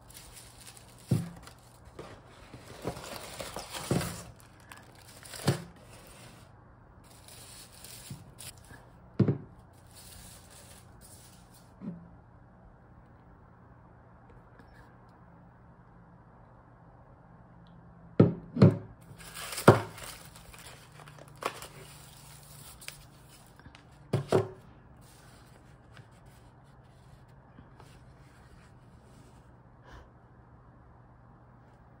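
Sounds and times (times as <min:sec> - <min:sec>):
paper packaging crinkle: 0:00.0 - 0:08.8, 0:09.7 - 0:11.7, 0:19.0 - 0:24.1
boxes and bottle knocking on table: 0:09.2 - 0:09.5.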